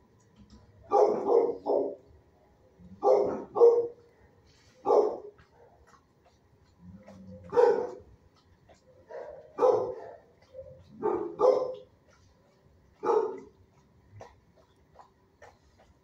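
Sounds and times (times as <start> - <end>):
dog barking: 0.8 - 2.0, 3.0 - 4.0, 4.8 - 5.8, 7.4 - 8.1, 9.0 - 11.9, 13.0 - 13.6
dog yipping: 8.7 - 11.8.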